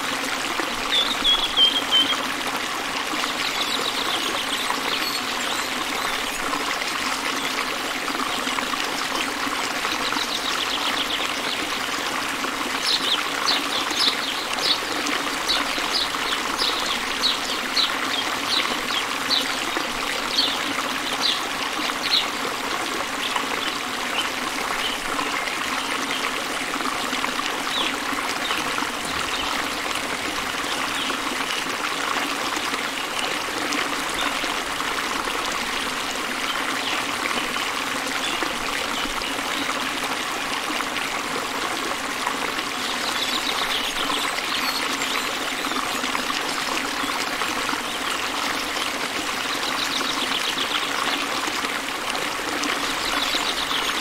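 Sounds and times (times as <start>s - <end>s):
flowing stream water: 0.0s - 54.0s
bird chirping: 0.9s - 2.2s.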